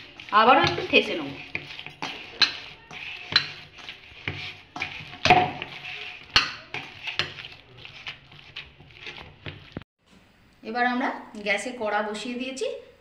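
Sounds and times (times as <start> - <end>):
dough kneaded in steel bowl: 0.0 - 9.9.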